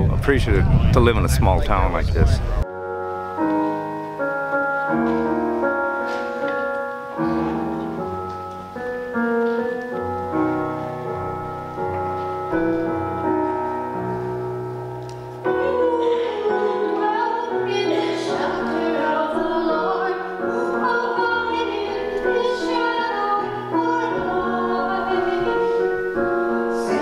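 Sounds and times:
slow piano music: 0:02.6 - 0:27.0
person singing with vibrato: 0:15.4 - 0:27.0.

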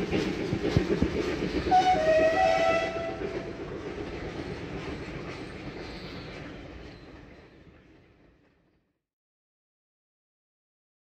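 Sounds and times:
train coaches rumbling and clattering: 0:00.0 - 0:08.9
steam train whistle: 0:01.7 - 0:03.5.

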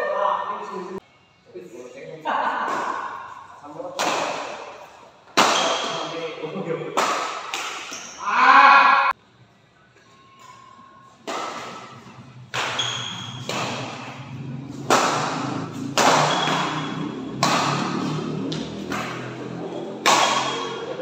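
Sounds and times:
rackets hitting shuttlecock: 0:04.0 - 0:06.1, 0:07.0 - 0:08.2, 0:11.2 - 0:21.0.

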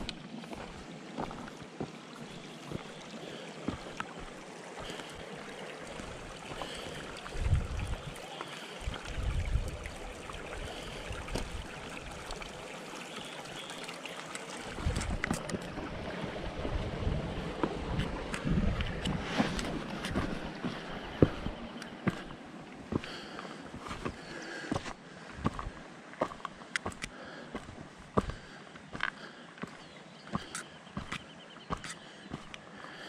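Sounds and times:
footsteps on gravel: 0:00.0 - 0:06.8, 0:17.6 - 0:32.6
stream trickling over rocks: 0:00.0 - 0:33.0.

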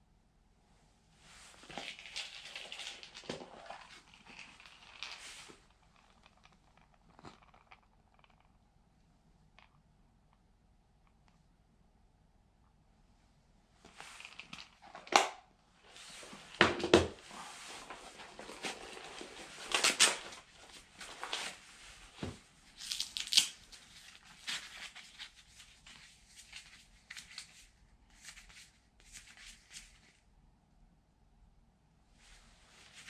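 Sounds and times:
fishing gear rustling: 0:01.3 - 0:08.4, 0:15.8 - 0:27.2
plastic measuring tape opened: 0:18.0 - 0:21.6, 0:22.8 - 0:25.4.

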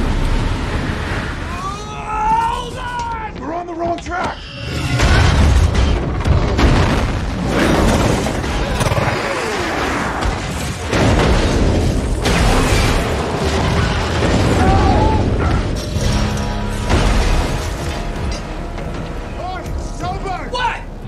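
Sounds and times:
deep booms: 0:04.9 - 0:08.7
metal crashing and grinding: 0:10.4 - 0:19.3.

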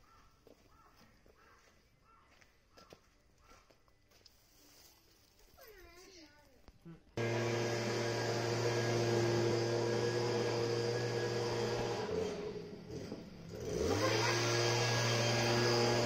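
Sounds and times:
motor hum: 0:07.2 - 0:16.0.

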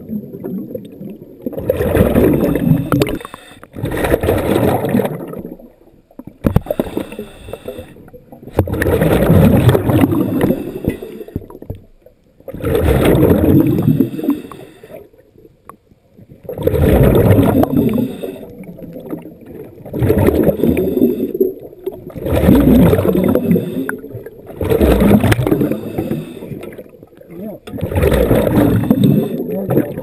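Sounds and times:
bubbling exhaust air: 0:00.0 - 0:05.3, 0:12.6 - 0:14.6, 0:16.5 - 0:19.1, 0:19.9 - 0:26.8, 0:27.8 - 0:30.0
diver breathing underwater: 0:01.7 - 0:04.5, 0:06.4 - 0:11.6, 0:12.7 - 0:15.1, 0:16.8 - 0:18.9, 0:20.1 - 0:21.7, 0:22.3 - 0:26.9, 0:27.8 - 0:29.6.

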